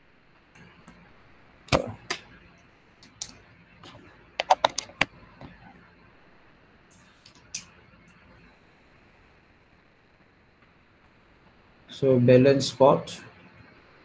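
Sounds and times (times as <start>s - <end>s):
keyboard key clicks: 4.4s - 5.1s.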